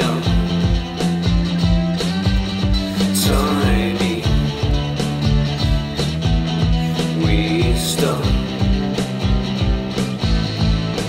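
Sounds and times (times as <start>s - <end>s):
steady drum beat: 0.0s - 11.0s.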